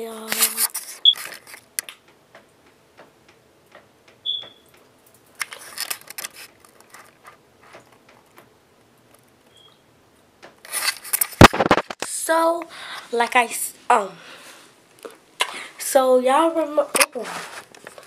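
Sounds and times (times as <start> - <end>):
autofocus beep: 4.2 - 4.6
camera clicks and taps: 10.4 - 12.0.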